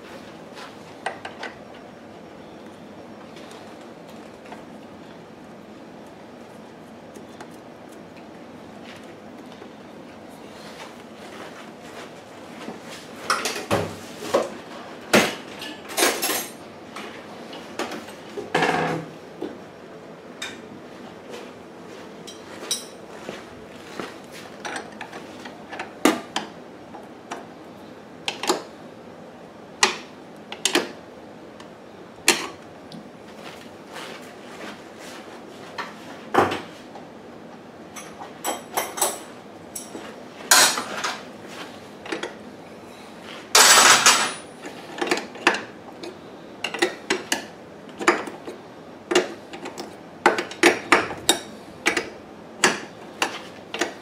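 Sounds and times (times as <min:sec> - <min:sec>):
metal tools clicking and clinking: 0:43.6 - 0:45.6.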